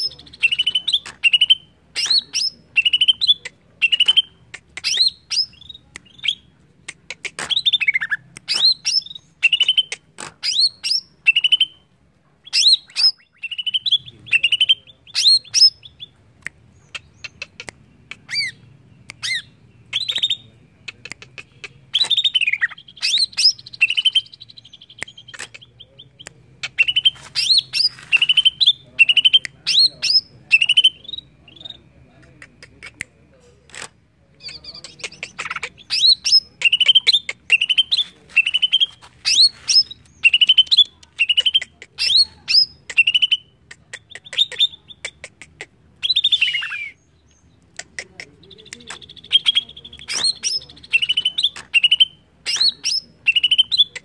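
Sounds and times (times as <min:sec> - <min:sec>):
bird singing whistled notes: 0:07.6 - 0:11.8, 0:46.0 - 0:47.5, 0:48.5 - 0:53.9.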